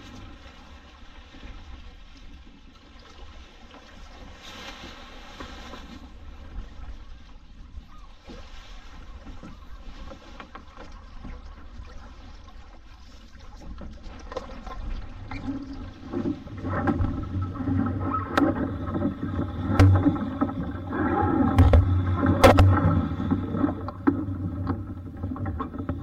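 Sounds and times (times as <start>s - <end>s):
water rushing along hull: 0.0s - 26.0s
low rumble: 15.8s - 26.0s
sharp knocks: 19.7s - 20.6s, 21.6s - 23.0s.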